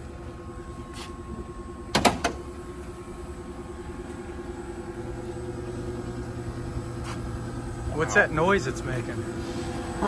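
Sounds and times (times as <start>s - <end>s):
electric drive hum with tone: 0.0s - 10.0s
hood latch clunks: 1.9s - 2.4s.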